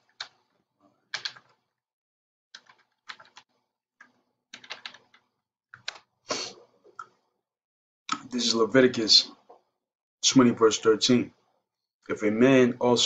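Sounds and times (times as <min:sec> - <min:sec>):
keyboard typing clicks: 0:01.1 - 0:01.6, 0:02.6 - 0:06.1.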